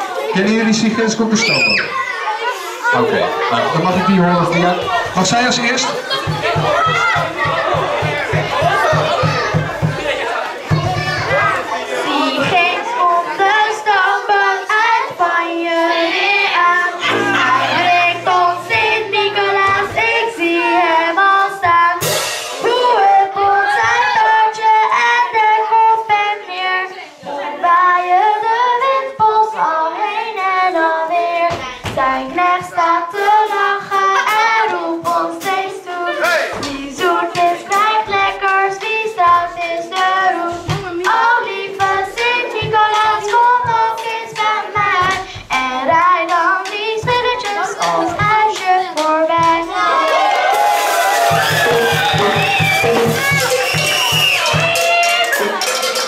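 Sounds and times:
girl singing into microphone: 0:12.1 - 0:50.1.

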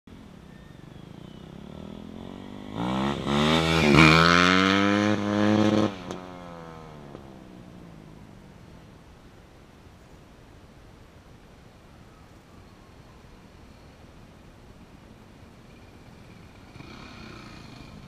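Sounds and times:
motorcycle engine accelerating: 0:00.2 - 0:08.6, 0:15.7 - 0:18.0.

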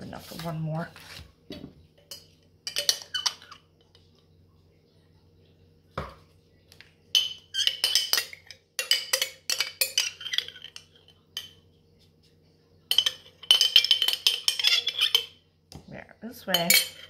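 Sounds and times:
metal spoon scraping glass jar: 0:13.6 - 0:15.3.

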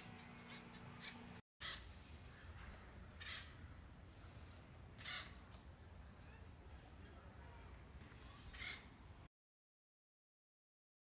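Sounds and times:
woodpecker harsh calls: 0:00.0 - 0:02.6, 0:03.2 - 0:03.7, 0:05.0 - 0:05.4, 0:08.2 - 0:08.9.

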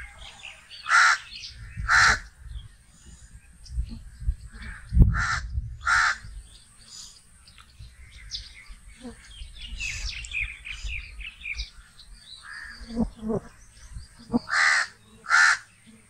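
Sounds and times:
crow cawing: 0:00.8 - 0:01.3, 0:01.9 - 0:02.3, 0:05.2 - 0:06.2, 0:14.5 - 0:15.6.

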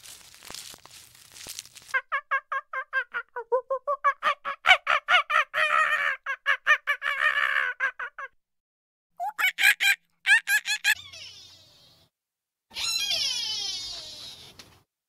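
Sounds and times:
monkey chattering harshly: 0:09.2 - 0:11.5
monkey chirping: 0:09.2 - 0:11.8.

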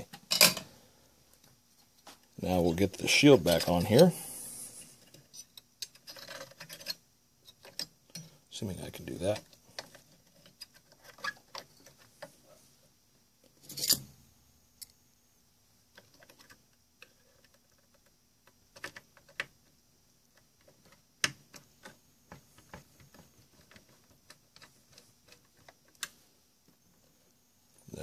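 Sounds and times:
small metal parts clicking and scraping: 0:03.5 - 0:08.4, 0:09.1 - 0:12.3, 0:13.4 - 0:14.2.

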